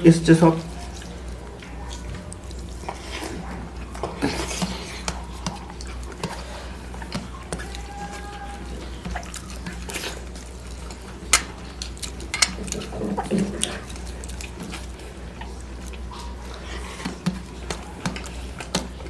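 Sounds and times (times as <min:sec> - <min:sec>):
low steady hum: 0:00.0 - 0:19.0
wet chewing clicks: 0:00.0 - 0:19.0.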